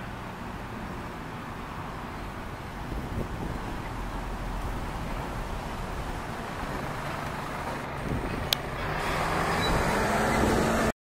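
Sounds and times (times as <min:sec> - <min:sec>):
road traffic noise: 0:00.0 - 0:11.0
vehicle passing close: 0:02.1 - 0:10.9.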